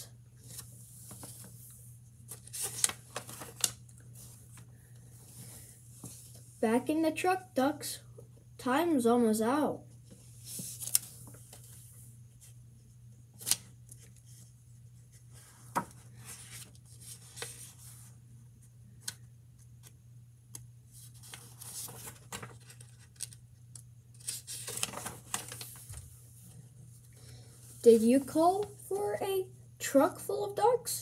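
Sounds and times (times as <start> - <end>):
book pages turning: 0.4 - 4.7, 10.1 - 12.6, 13.4 - 26.5.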